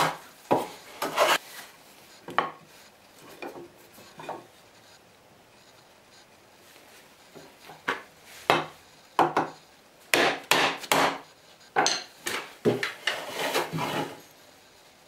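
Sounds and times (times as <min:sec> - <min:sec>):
hand plane rasping on wood: 0:01.0 - 0:01.4, 0:13.0 - 0:14.2.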